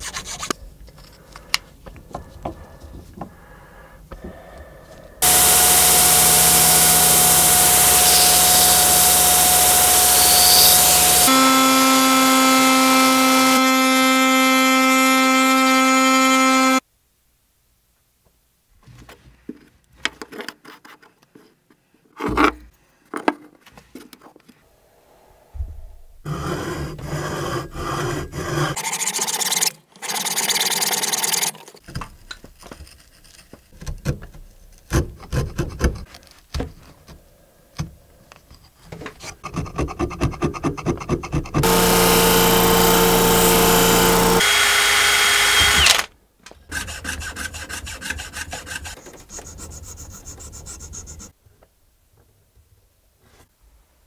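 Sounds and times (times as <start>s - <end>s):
rapid rubbing and sawing strokes: 5.2s - 13.7s, 39.2s - 45.8s, 46.7s - 51.3s
fret saw cutting wood: 5.2s - 16.8s, 41.6s - 46.1s
power tool running: 5.2s - 16.8s, 41.6s - 46.1s.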